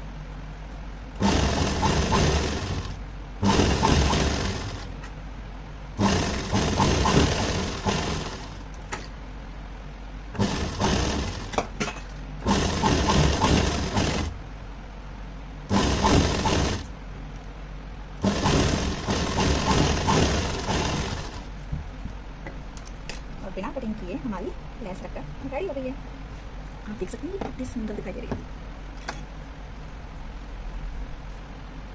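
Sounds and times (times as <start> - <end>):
electric sewing machine stitching: 1.2 - 5.0, 6.0 - 8.7, 10.4 - 11.6, 12.4 - 14.4, 15.7 - 16.9, 18.2 - 21.5.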